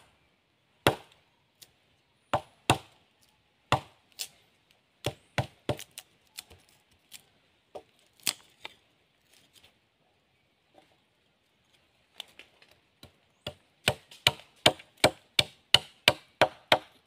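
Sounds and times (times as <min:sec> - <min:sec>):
machete chopping wood: 0:00.8 - 0:01.2, 0:02.3 - 0:03.0, 0:03.7 - 0:04.3, 0:05.0 - 0:06.6, 0:13.0 - 0:17.0.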